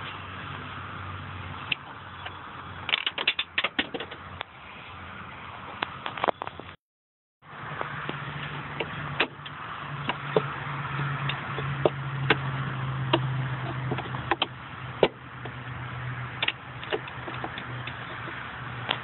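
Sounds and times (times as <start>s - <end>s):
clicks and knocks of handled parts: 1.7s - 4.2s, 16.4s - 19.0s.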